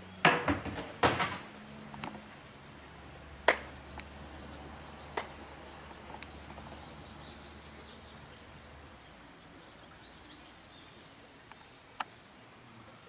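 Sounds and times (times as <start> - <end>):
faint birds chirping: 0.0 - 13.0
sharp knocks and clacks: 0.2 - 1.5.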